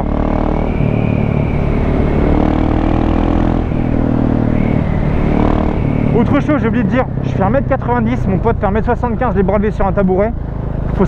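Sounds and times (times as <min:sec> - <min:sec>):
motorcycle engine revving: 0:00.0 - 0:11.0.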